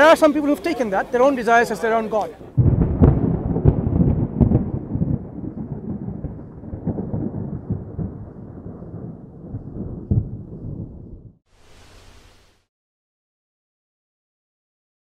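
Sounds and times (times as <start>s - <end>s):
deep thunder-like rumble: 2.4s - 12.6s.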